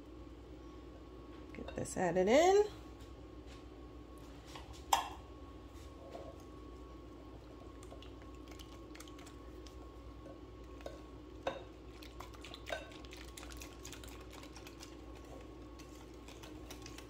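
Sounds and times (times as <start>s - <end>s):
whisk ticking against glass bowl: 12.3s - 13.6s.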